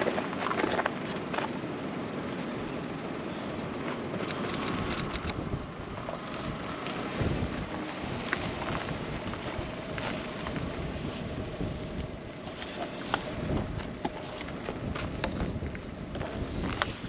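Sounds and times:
steady outdoor rumble: 0.0s - 17.0s
handling clicks: 4.2s - 5.3s.

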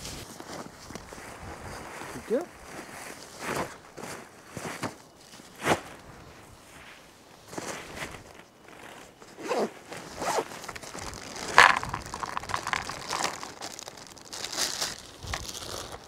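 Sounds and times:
zipper pulled open: 9.4s - 13.6s
plastic bag crinkling: 10.0s - 16.0s
dry dog food poured into bowl: 11.3s - 14.3s.

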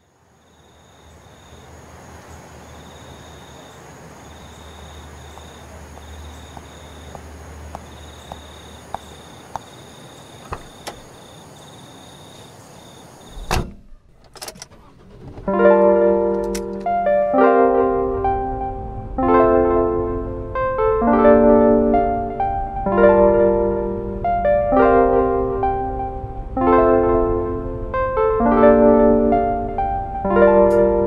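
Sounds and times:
crickets chirping: 0.0s - 17.0s
clicks: 13.4s - 17.0s, 30.7s - 30.9s
piano notes: 13.5s - 31.0s.

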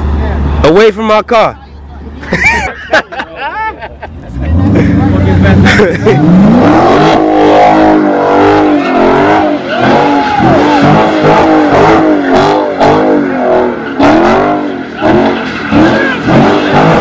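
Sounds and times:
car engine revving hard: 4.2s - 17.0s.

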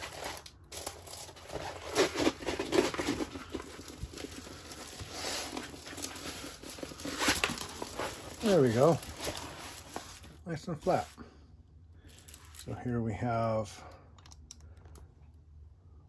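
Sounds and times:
plastic-covered canvas crinkling: 0.0s - 11.2s.

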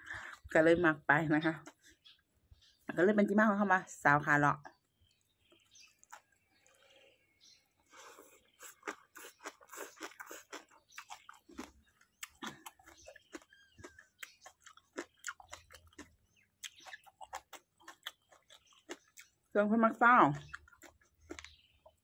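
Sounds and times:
chewing with crisp crunches: 4.6s - 22.0s.

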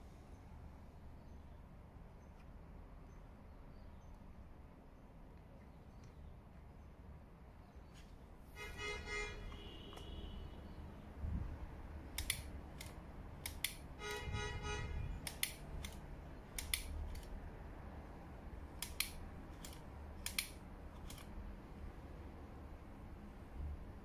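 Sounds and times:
sharp metallic clicks: 12.1s - 14.3s, 15.2s - 17.4s, 18.7s - 21.4s.

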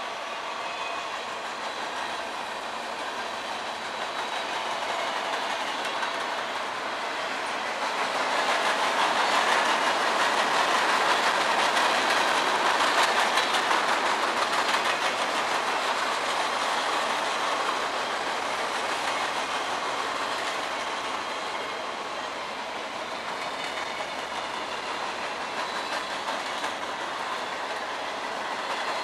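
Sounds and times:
steel wheels rolling on rail: 0.0s - 29.0s
wheels clicking over rail joints: 7.4s - 21.7s.

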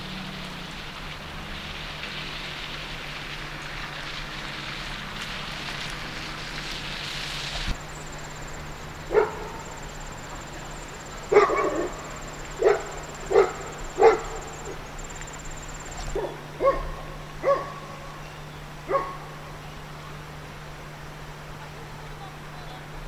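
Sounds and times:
dog barking: 9.1s - 9.8s, 11.3s - 14.8s, 16.1s - 18.0s, 18.9s - 19.4s.

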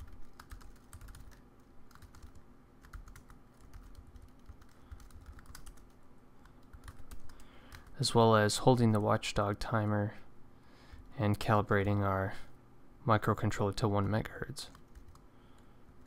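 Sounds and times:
keyboard typing clicks: 0.0s - 7.9s
faint low hum: 0.0s - 16.0s.

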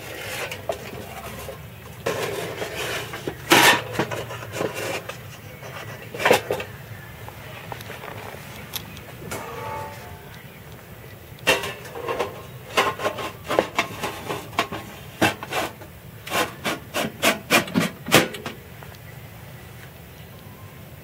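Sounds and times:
hard objects knocking and scraping: 0.0s - 6.7s, 11.4s - 18.6s
steady background hiss: 0.0s - 21.0s.

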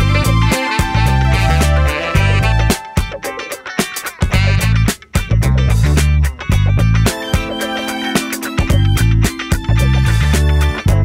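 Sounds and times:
background music with bass and drums: 0.0s - 11.0s.

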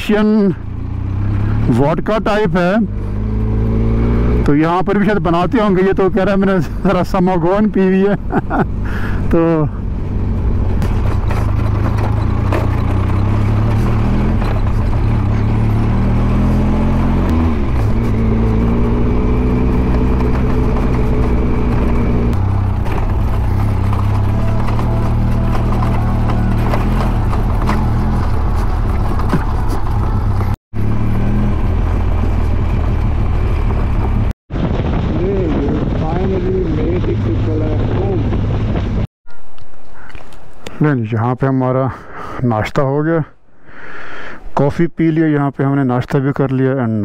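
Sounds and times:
motorcycle engine running: 0.0s - 5.9s, 8.1s - 39.1s.

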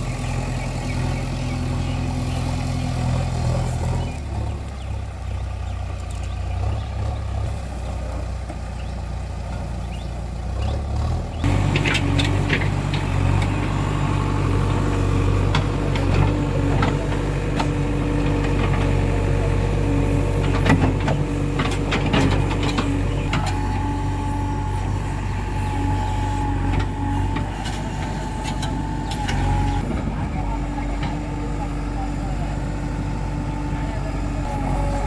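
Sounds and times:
diesel engine running under load: 0.0s - 35.0s
clanks and knocks: 20.4s - 23.6s.

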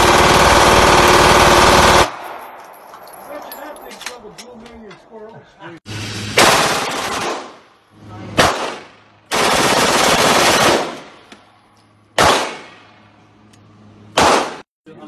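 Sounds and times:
automatic gunfire burst: 0.0s - 2.1s, 6.4s - 7.6s, 8.4s - 11.0s
gunshots: 6.2s - 7.7s, 8.3s - 11.2s, 12.2s - 12.9s, 14.1s - 14.7s.

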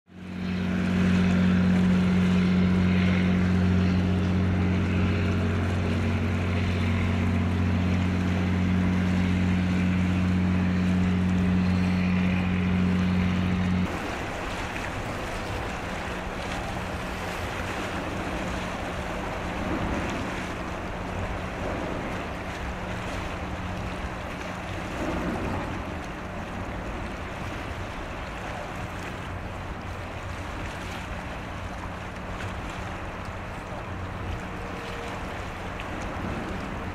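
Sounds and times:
wind: 0.0s - 36.9s
ship diesel engine drone: 0.1s - 36.9s
lapping water: 13.8s - 36.9s.

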